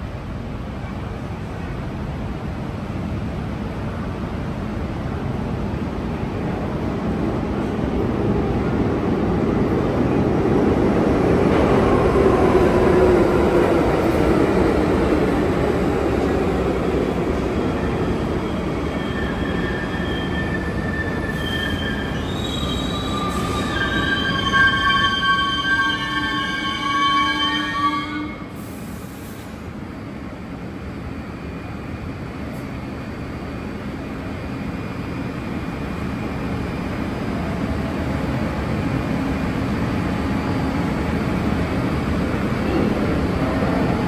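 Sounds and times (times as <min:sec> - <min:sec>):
subway train rumbling: 0:00.0 - 0:44.0
steel wheels squealing: 0:17.8 - 0:28.0.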